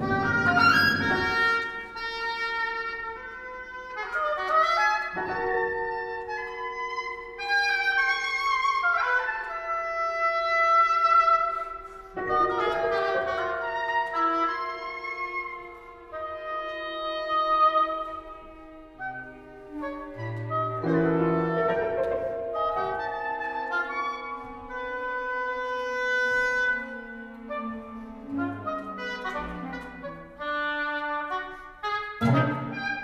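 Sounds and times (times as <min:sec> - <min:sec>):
chamber ensemble playing: 0:00.0 - 0:33.0
oboe: 0:00.0 - 0:33.0.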